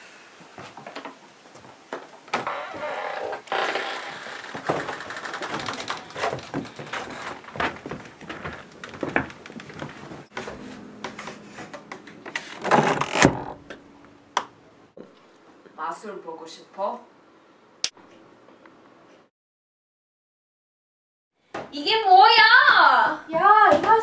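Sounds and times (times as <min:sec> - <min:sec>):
footsteps: 0:00.4 - 0:12.6.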